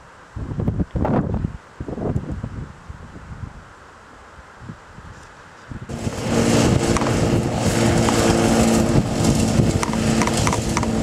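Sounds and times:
lawn mower engines running: 0:05.9 - 0:11.0.

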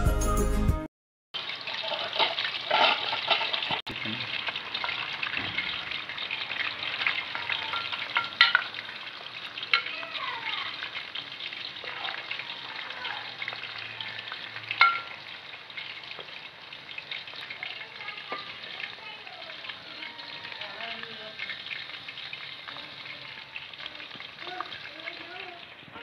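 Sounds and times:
food deep-frying in oil: 0:01.4 - 0:26.0
ladle clinking against pan: 0:07.3 - 0:08.7, 0:14.8 - 0:15.1.

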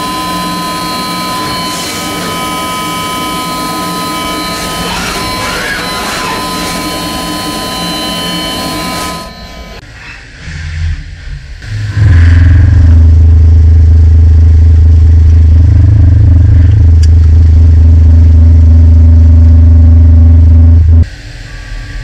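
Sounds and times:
metal cutting noise: 0:00.0 - 0:10.0
machine whine: 0:00.0 - 0:22.0.

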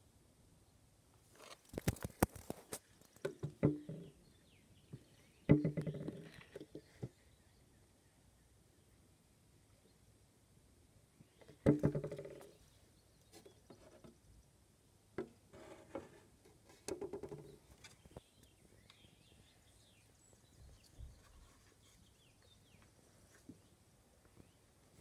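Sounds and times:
faint bird chirps: 0:03.8 - 0:10.0, 0:17.3 - 0:24.7.

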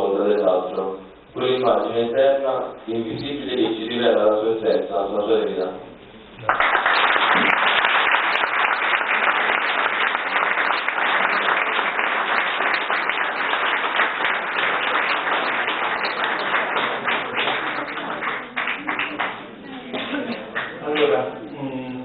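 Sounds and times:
audience applause: 0:06.4 - 0:21.2.

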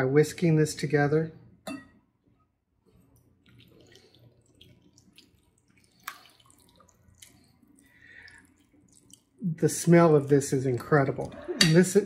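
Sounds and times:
soft liquid stirring: 0:02.8 - 0:12.0.

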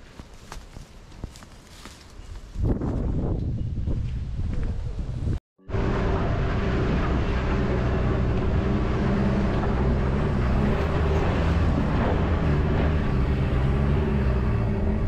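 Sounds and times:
tyre and road noise: 0:00.0 - 0:04.5, 0:05.6 - 0:15.0
vehicle engine running: 0:05.6 - 0:15.0.

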